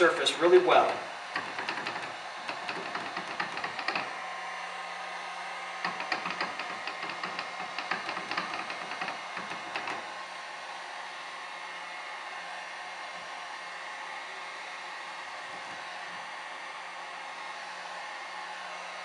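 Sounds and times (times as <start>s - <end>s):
heat gun blowing: 0.0s - 19.0s
fingertips tapping: 0.9s - 4.2s, 5.8s - 10.0s.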